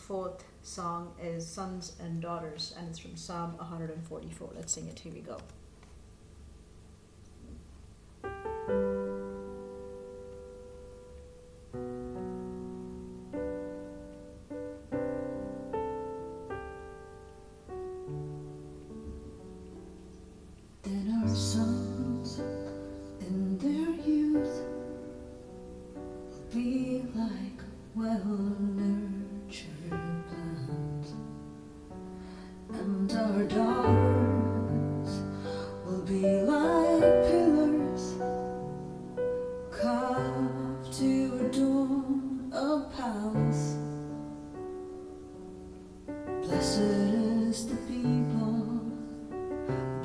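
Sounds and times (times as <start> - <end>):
electronic keyboard piano chords: 8.2 - 28.0
woman singing a worship song: 20.8 - 24.8, 26.4 - 31.2, 32.7 - 38.4, 39.7 - 44.0, 46.4 - 49.2.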